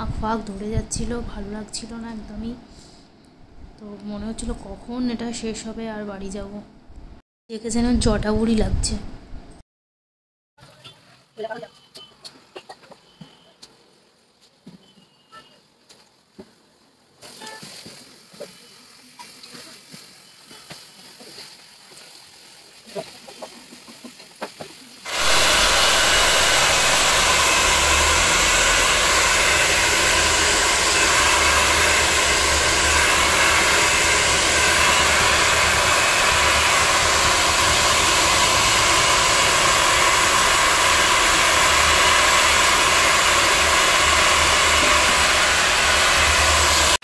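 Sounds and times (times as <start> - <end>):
hair dryer blowing: 25.0 - 47.0.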